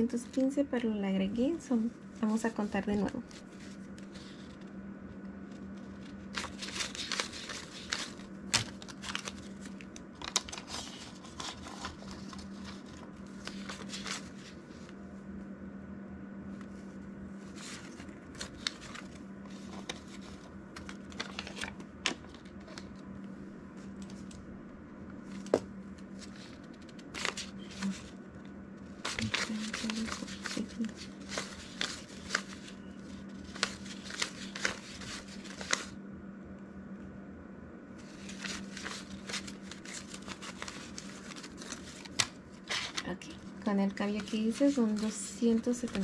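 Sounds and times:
banknotes rustling and flicking: 1.4 - 15.0, 16.6 - 24.5, 25.2 - 28.2, 28.8 - 36.0, 38.0 - 46.0.

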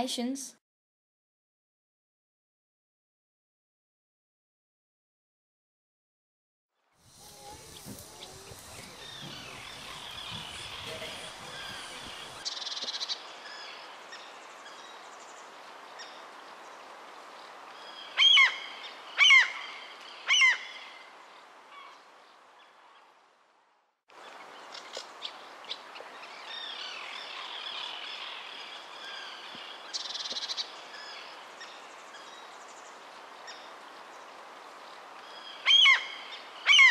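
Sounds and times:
bird chirps: 7.1 - 13.2
birds calling: 7.1 - 14.8
loud downward-sweeping bird calls: 7.2 - 12.8, 35.6 - 36.9.

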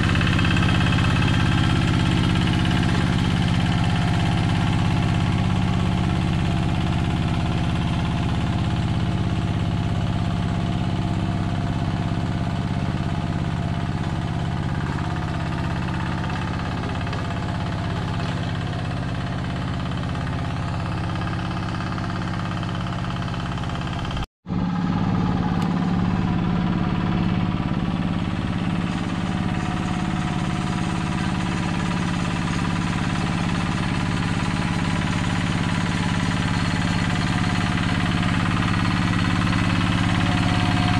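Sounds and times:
diesel engine running: 0.0 - 40.9.

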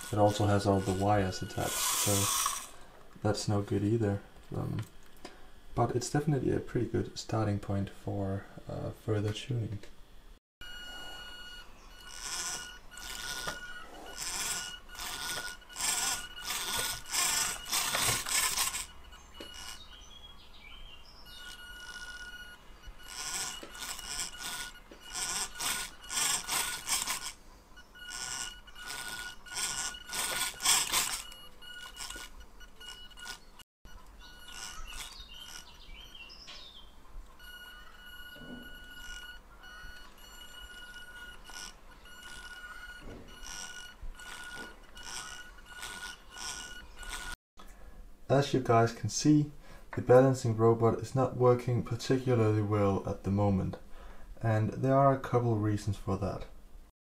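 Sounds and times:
small geared motors whirring: 0.0 - 2.9, 10.6 - 47.4.

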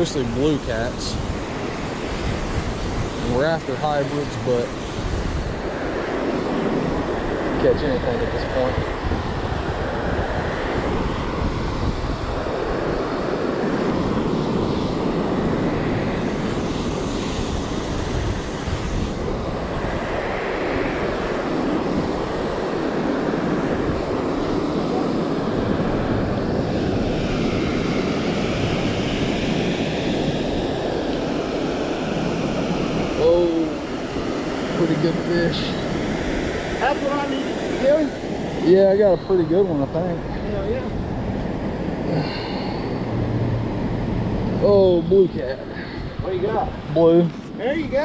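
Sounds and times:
wind: 0.0 - 48.0.

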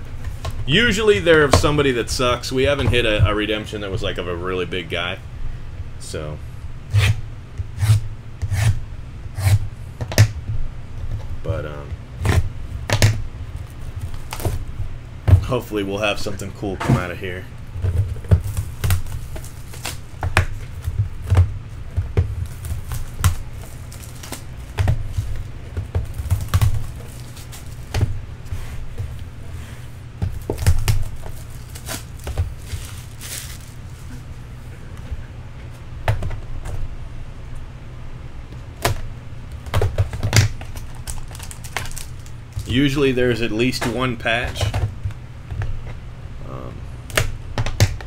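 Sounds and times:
steady low hum: 0.0 - 48.0
shrink wrap crinkling and tearing: 13.5 - 14.7, 18.1 - 21.2, 22.4 - 27.9, 30.3 - 34.2, 40.2 - 43.1.

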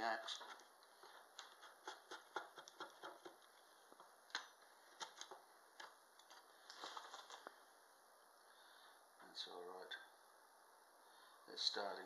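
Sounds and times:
draw knife scraping wood: 0.3 - 3.4.

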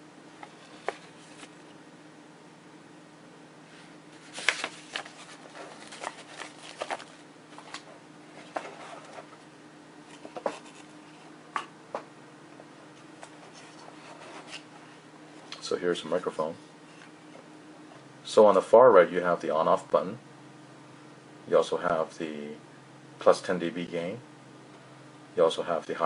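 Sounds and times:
steady low hum: 0.0 - 26.0
paper and cardboard handling: 0.4 - 1.7, 4.2 - 9.4, 10.1 - 11.2, 13.2 - 14.8.

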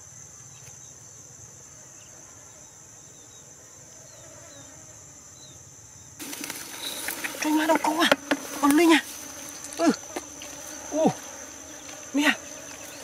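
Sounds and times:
insects buzzing: 0.0 - 13.0
rustling and clicking: 6.2 - 8.8.

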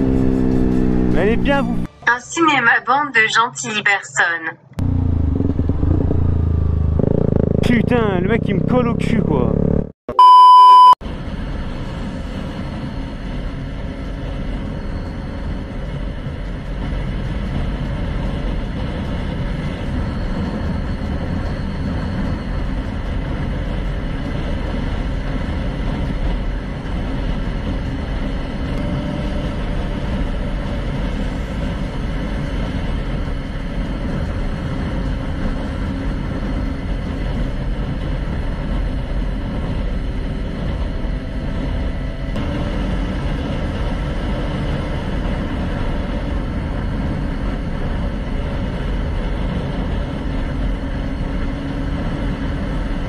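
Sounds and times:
motorcycle engine: 0.0 - 2.0, 4.8 - 10.0
road noise: 0.0 - 10.0, 10.7 - 53.0.

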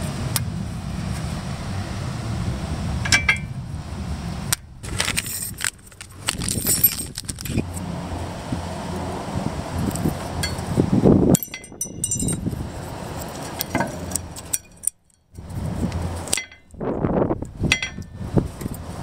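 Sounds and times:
handling noise: 4.5 - 7.9.

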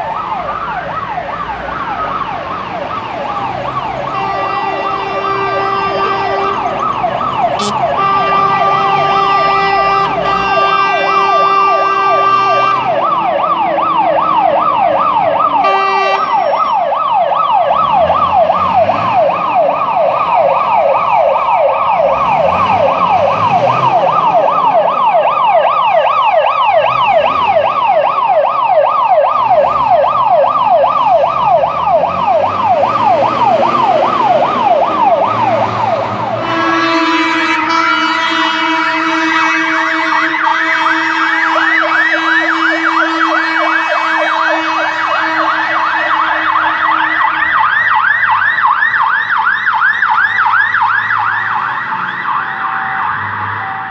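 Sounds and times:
siren yelping: 0.0 - 53.9
air horn blasts: 4.1 - 6.7, 7.5 - 12.9, 15.6 - 16.5, 36.4 - 47.6.

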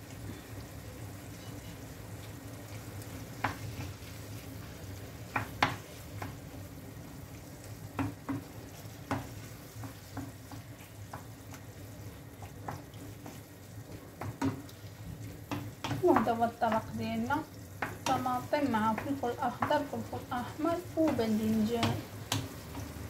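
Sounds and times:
vegetables sizzling in a pan: 0.0 - 23.0
spoon knocking and scraping a pan: 3.4 - 4.1, 5.3 - 6.4, 7.9 - 17.0, 17.7 - 23.0.

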